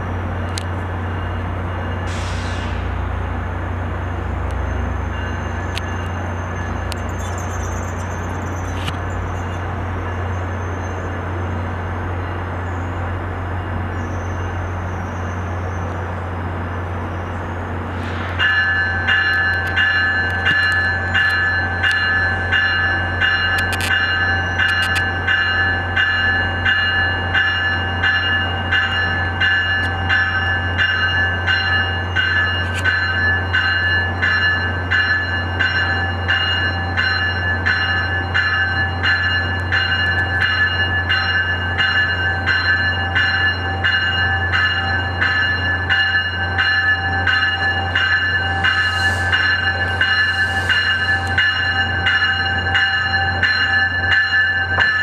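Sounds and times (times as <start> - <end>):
train bell ringing: 0.0 - 16.0, 17.1 - 55.0
short air hisses: 2.1 - 2.9.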